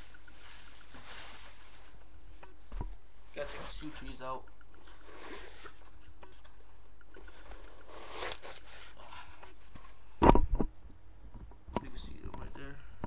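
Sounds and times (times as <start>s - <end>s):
loud thumps: 10.2s - 11.5s.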